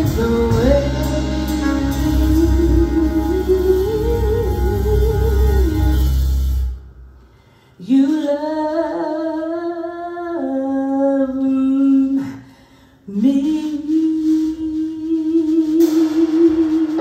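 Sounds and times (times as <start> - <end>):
person singing unaccompanied: 0.0 - 6.0.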